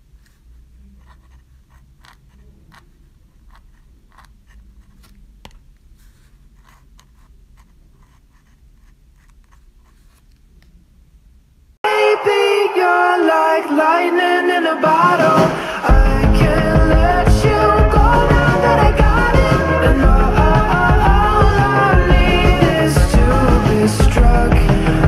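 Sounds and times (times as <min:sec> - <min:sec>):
pen nib scratching paper: 0:00.2 - 0:05.3, 0:06.0 - 0:10.4.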